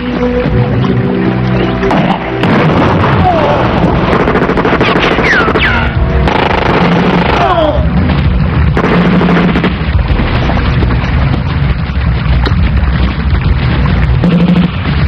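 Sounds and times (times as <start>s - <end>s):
rumble of explosions: 0.0s - 15.0s
gunfire cracking: 2.4s - 7.7s, 8.7s - 10.8s.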